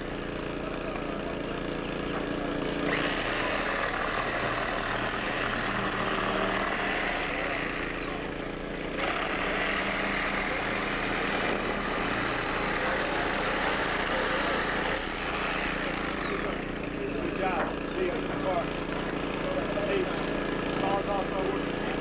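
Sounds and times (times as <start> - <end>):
steady engine hum: 0.0 - 22.0
reciprocating saw cutting glass: 2.8 - 16.8.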